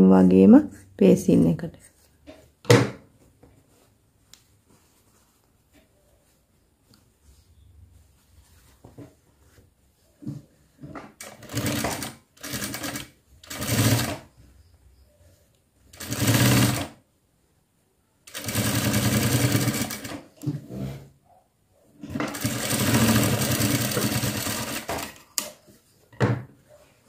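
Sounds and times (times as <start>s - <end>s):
fabric handling: 1.8s - 10.8s
sewing machine stitching: 11.2s - 14.3s, 15.9s - 17.0s, 18.3s - 20.3s, 22.0s - 25.2s.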